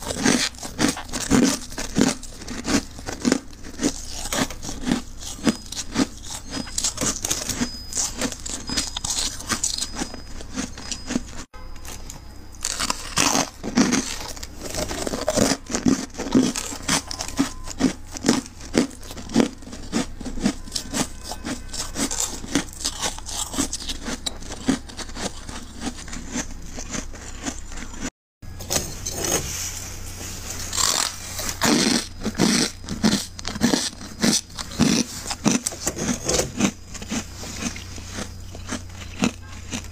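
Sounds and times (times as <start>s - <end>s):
frost being scraped: 28.9s - 39.9s.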